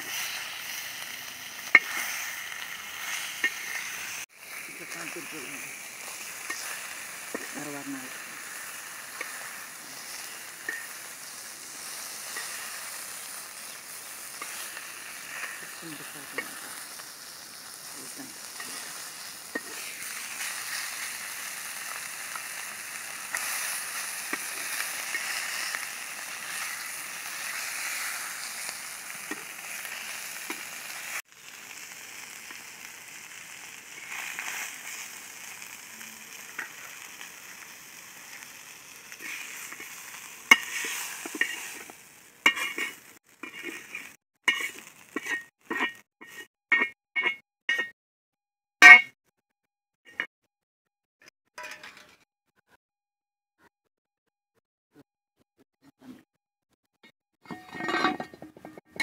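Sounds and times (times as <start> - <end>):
fish sizzling in oil: 0.0 - 46.5
metal spatula scraping pan: 1.6 - 2.4, 3.0 - 4.2, 4.8 - 17.0, 18.0 - 21.2, 21.8 - 30.8, 39.1 - 47.9, 57.4 - 59.0.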